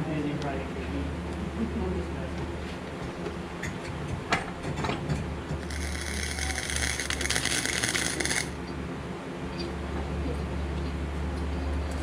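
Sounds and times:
welding arc crackle: 0:05.6 - 0:08.6.

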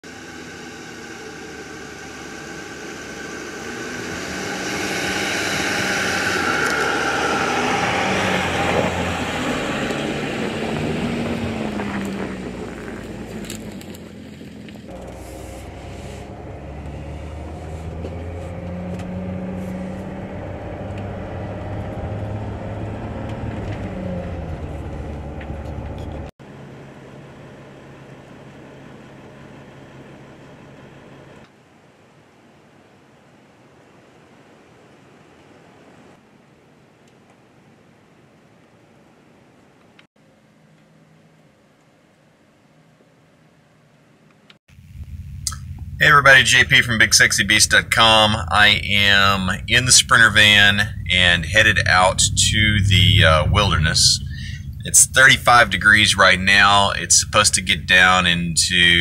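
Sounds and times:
van passing on snow: 0:00.0 - 0:31.4, 0:44.7 - 0:59.0
engine and road hum in cab: 0:00.0 - 0:31.6, 0:40.0 - 0:59.0.

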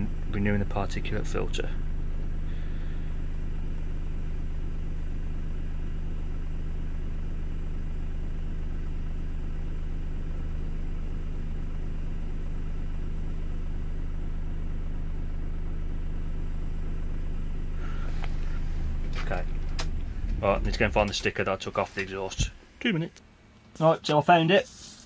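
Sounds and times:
truck diesel engine idling: 0:17.6 - 0:22.8.

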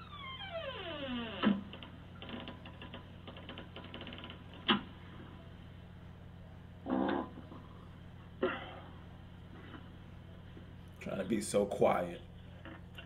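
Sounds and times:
squeaky fart sound falling: 0:00.0 - 0:02.6, 0:06.8 - 0:07.8.

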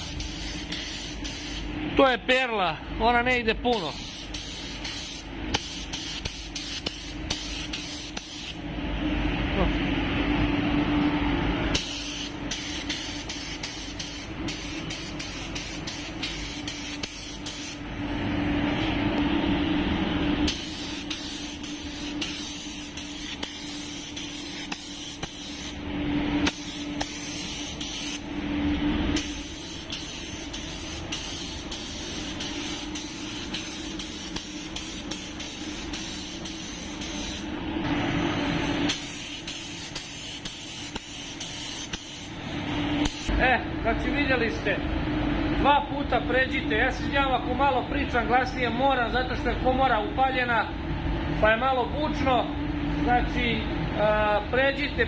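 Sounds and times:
paint spray gun hissing: 0:00.0 - 0:01.7, 0:03.9 - 0:08.6, 0:11.8 - 0:17.8, 0:20.5 - 0:25.8, 0:26.4 - 0:28.3, 0:29.2 - 0:37.4, 0:38.9 - 0:42.4, 0:43.0 - 0:43.3
extraction fan drone: 0:00.0 - 0:55.0.

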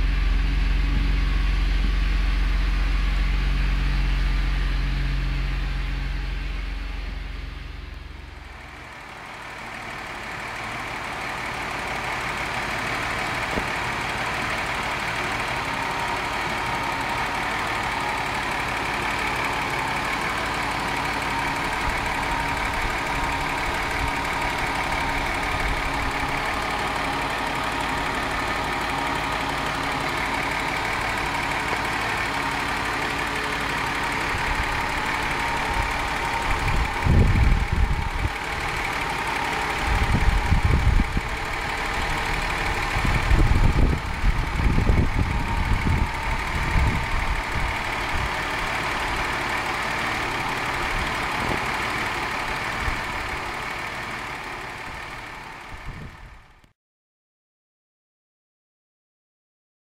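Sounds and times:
irregular low rumbles: 0:00.0 - 0:11.1, 0:21.7 - 0:49.4
car engine idling: 0:00.0 - 0:56.7.

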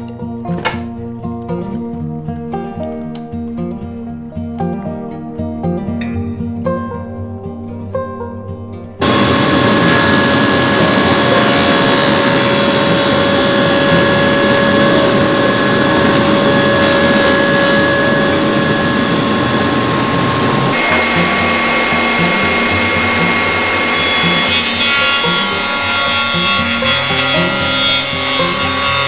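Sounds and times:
table saw motor whine: 0:09.0 - 0:29.0.

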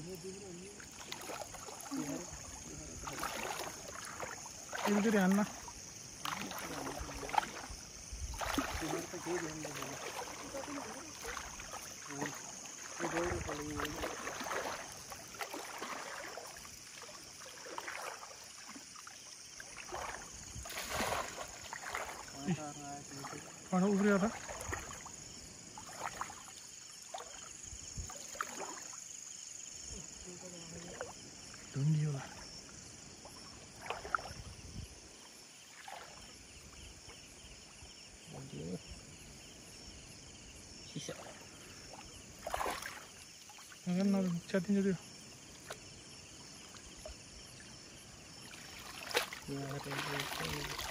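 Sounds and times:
night insects chirping: 0:00.0 - 0:50.9
water sloshing around legs: 0:00.2 - 0:50.9
footsteps through wet vegetation: 0:00.7 - 0:27.5, 0:42.2 - 0:43.8, 0:48.5 - 0:50.9.

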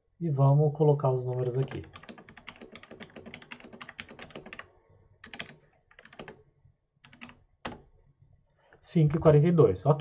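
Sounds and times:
computer keyboard typing: 0:01.3 - 0:06.4, 0:07.0 - 0:07.9.

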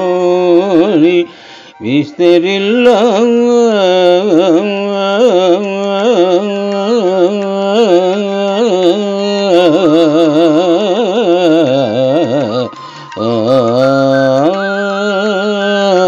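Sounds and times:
man singing: 0:00.0 - 0:16.0
steady accompanying tone: 0:06.3 - 0:16.0.

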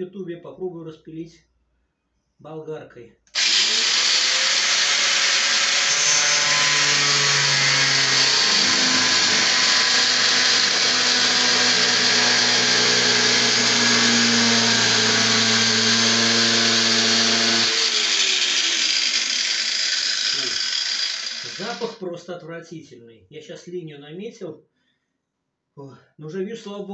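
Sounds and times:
angle grinder cutting plastic sheet: 0:03.3 - 0:22.0.

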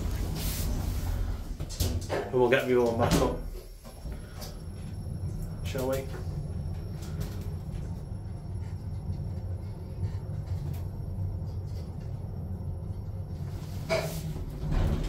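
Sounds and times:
lift car rumbling: 0:00.0 - 0:15.0.

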